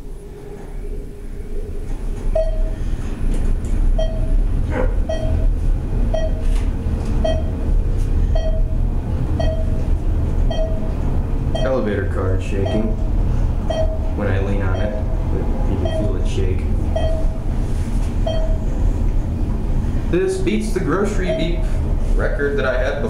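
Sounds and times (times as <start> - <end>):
elevator ride rumble: 0.0 - 23.0
elevator floor beep: 2.3 - 3.1, 3.9 - 6.6, 7.2 - 11.9, 12.5 - 17.6, 18.2 - 18.9, 21.0 - 21.8.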